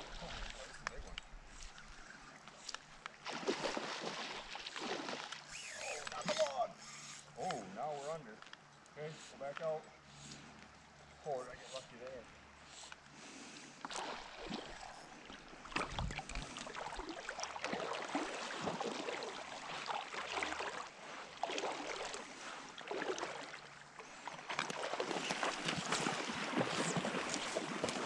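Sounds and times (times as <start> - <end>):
small splashes: 0.0 - 7.1, 13.8 - 28.0
water sloshing and lapping: 0.0 - 28.0.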